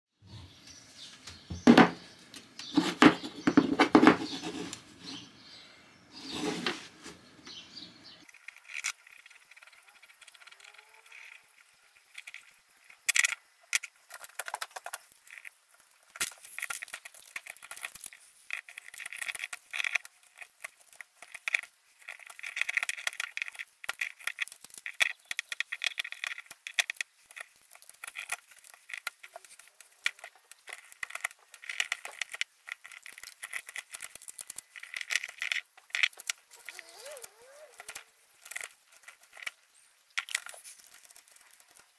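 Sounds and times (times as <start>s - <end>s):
knife whittling wood: 2.7s - 5.2s, 6.2s - 7.2s, 36.4s - 38.7s.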